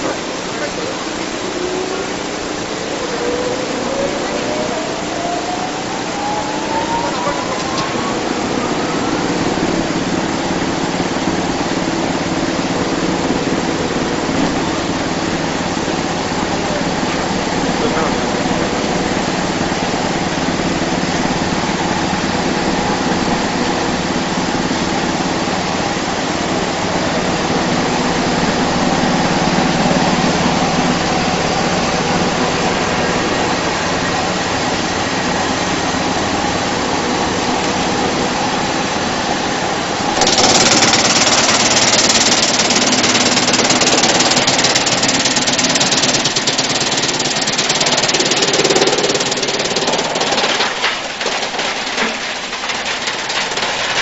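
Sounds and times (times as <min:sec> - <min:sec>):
wood chipper droning: 0:00.0 - 0:54.0
blades chipping log: 0:40.2 - 0:51.2.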